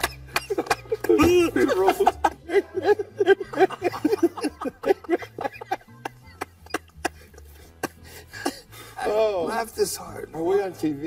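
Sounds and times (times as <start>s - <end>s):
men laughing: 0.0s - 9.0s.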